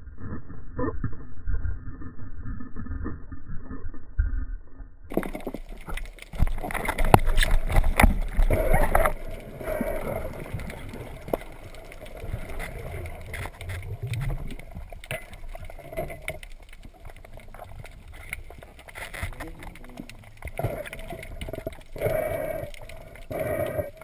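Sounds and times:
underwater water noise: 0.0 - 24.0
underwater clicks: 5.1 - 24.0.

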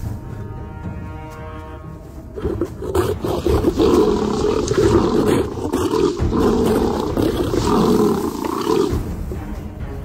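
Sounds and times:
lions roaring and snarling: 2.3 - 9.1.

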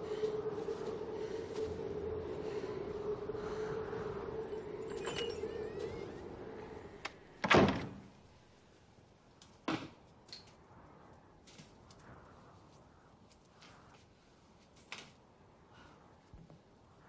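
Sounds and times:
front door slamming shut: 7.4 - 8.1.

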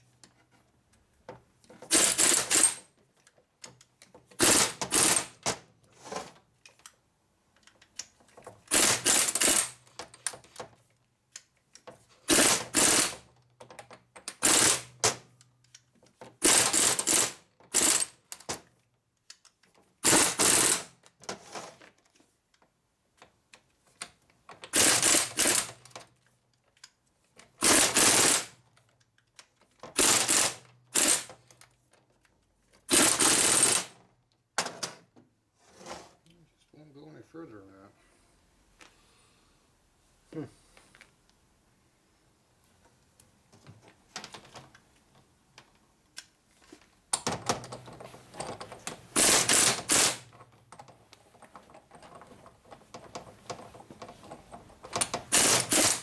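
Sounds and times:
power tool bursts: 1.9 - 2.8, 4.4 - 5.4, 12.3 - 13.2, 14.4 - 14.9, 16.4 - 18.2, 20.0 - 20.9, 24.7 - 25.8, 27.6 - 28.5, 30.0 - 31.3, 32.9 - 34.0, 49.2 - 50.3, 55.3 - 56.0.

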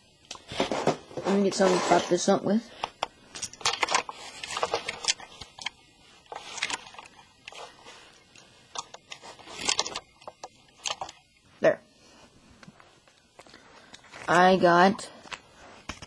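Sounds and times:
plastic clicks and scrapes: 2.8 - 11.2
foil packets crinkling: 3.6 - 8.2, 8.8 - 11.2.

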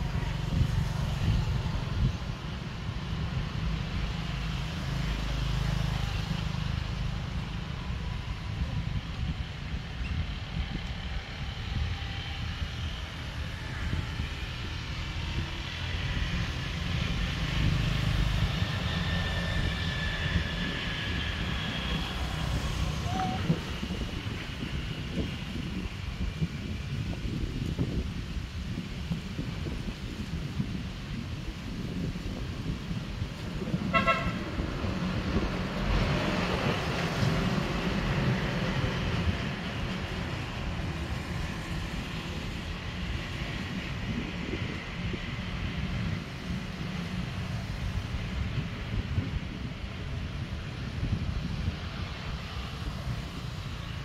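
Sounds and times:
road traffic rumble: 0.0 - 54.0
wind on microphone: 0.0 - 54.0
vehicle horn toot: 33.9 - 34.4.

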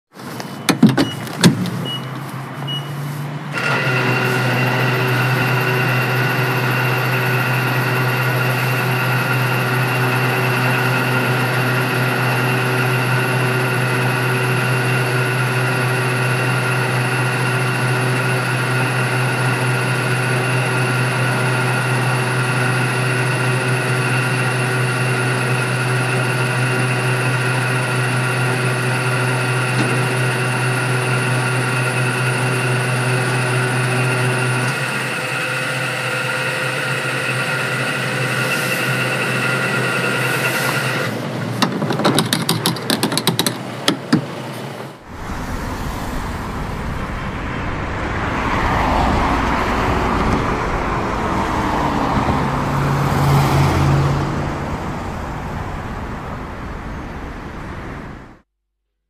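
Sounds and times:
short high beeps: 2.7 - 3.0
electric motor and gearbox whining: 3.5 - 46.0.

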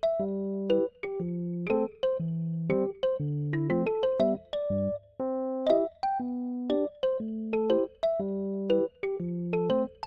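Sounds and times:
light piano-like keyboard tune: 0.0 - 10.0.

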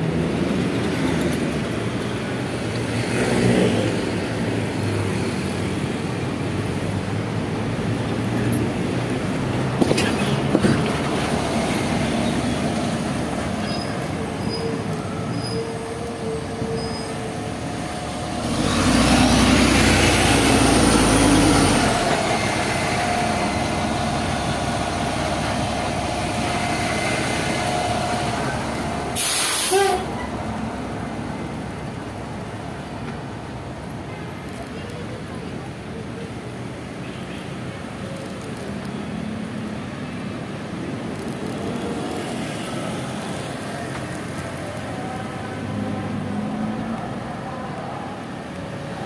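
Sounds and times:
bus engine swell: 0.0 - 36.9, 37.8 - 49.0
city street traffic: 0.0 - 49.0
air brake hiss: 29.2 - 30.1.

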